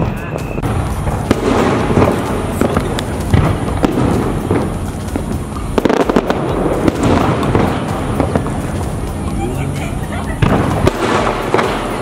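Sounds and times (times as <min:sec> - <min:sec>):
firework shells bursting: 0:00.0 - 0:12.0.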